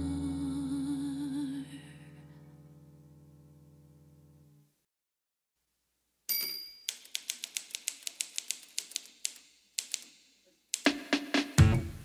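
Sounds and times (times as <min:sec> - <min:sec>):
typewriter bell ding: 0:06.3 - 0:07.3
typewriter keystrokes: 0:06.9 - 0:10.1.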